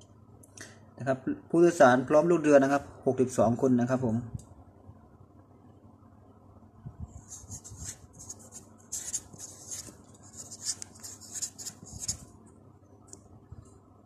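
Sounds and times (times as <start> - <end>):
marker scratching on paper: 7.2 - 12.3.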